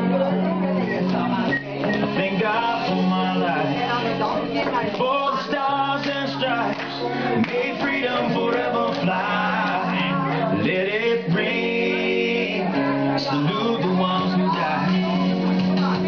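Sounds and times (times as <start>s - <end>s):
country song over sound system: 0.0s - 16.0s.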